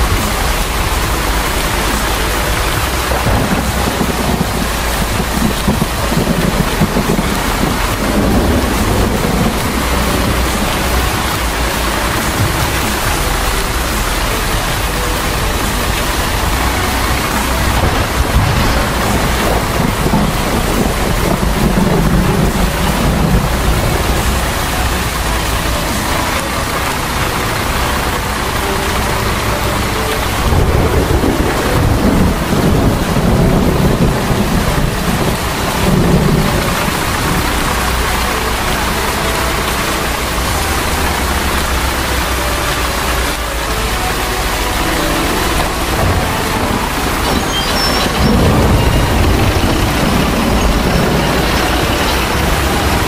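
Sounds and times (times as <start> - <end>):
low rumble: 0.0 - 43.4, 44.6 - 53.0
heavy rain: 0.0 - 53.0.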